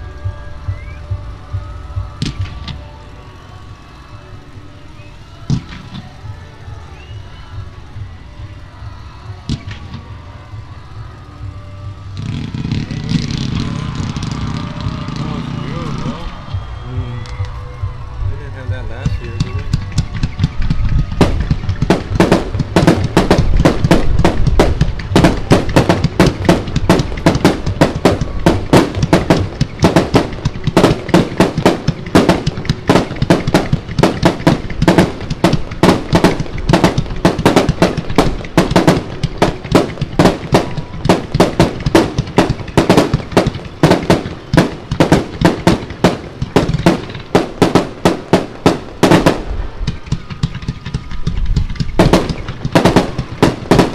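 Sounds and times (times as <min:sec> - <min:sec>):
fireworks launches and bangs: 0:02.1 - 0:02.9, 0:12.1 - 0:16.9, 0:19.0 - 0:53.9.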